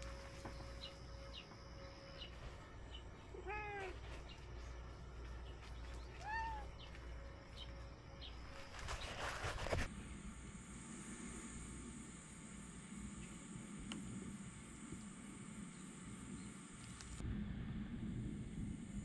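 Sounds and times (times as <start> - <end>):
cat meowing: 3.4 - 4.0, 6.1 - 6.8.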